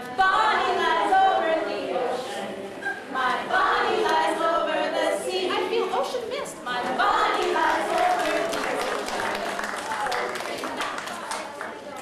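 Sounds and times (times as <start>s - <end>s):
children singing in chorus: 0.0s - 5.6s, 6.7s - 10.7s.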